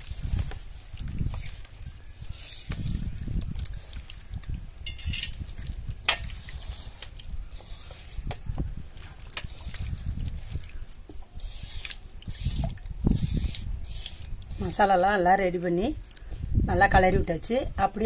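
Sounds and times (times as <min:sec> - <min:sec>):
hand squelching wet paste: 0:00.0 - 0:16.4
clicks and scrapes against pot: 0:04.8 - 0:09.9.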